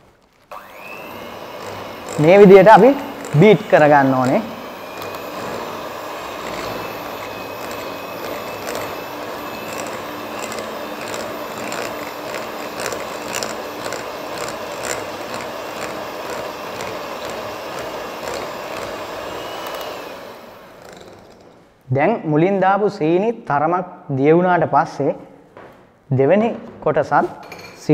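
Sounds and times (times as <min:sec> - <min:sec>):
electric hand mixer whine: 0:00.5 - 0:21.6.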